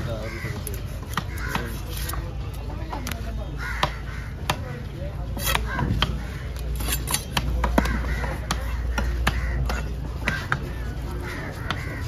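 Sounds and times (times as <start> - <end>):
knife striking wooden chopping block: 5.3 - 10.6.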